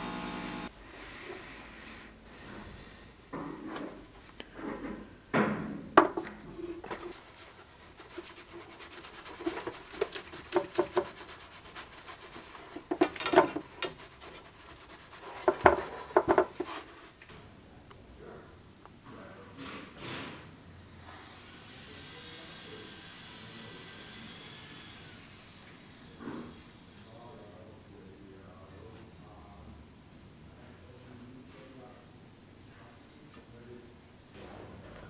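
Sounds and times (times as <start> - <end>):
rag rubbing on metal: 6.8 - 16.9.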